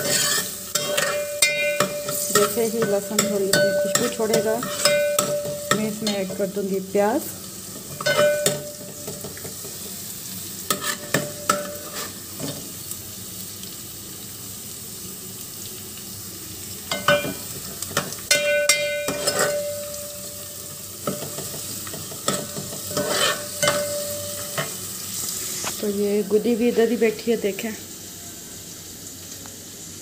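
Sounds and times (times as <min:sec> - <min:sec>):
spoon scraping pan: 0:00.0 - 0:06.5, 0:07.7 - 0:09.9, 0:10.7 - 0:12.6, 0:16.9 - 0:19.9, 0:21.0 - 0:25.8
food sizzling in hot oil: 0:00.0 - 0:30.0
spoon clinking on pan: 0:00.3 - 0:06.3, 0:07.9 - 0:09.5, 0:16.9 - 0:20.4, 0:21.0 - 0:24.8.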